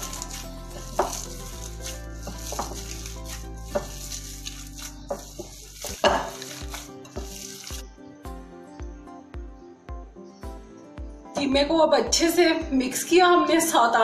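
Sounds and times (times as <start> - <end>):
hands squishing wet mince: 0.0 - 7.8
background music: 0.0 - 14.0.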